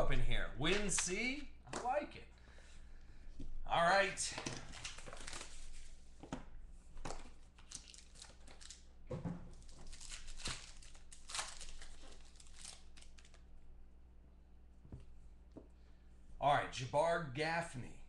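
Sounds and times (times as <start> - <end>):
foil wrapper tearing and crinkling: 4.7 - 5.9, 7.5 - 8.9, 9.5 - 13.4.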